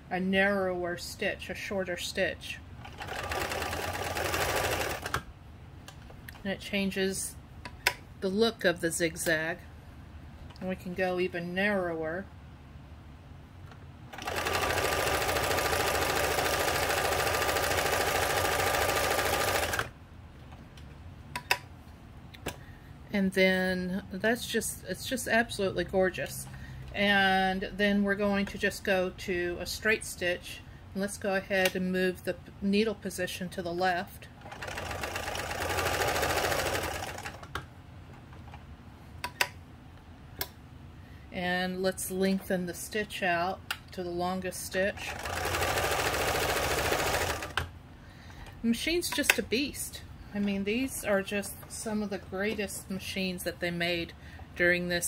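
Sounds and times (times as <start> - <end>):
sewing machine running: 2.8 - 5.2, 14.1 - 19.9, 34.4 - 37.5, 45.0 - 47.6.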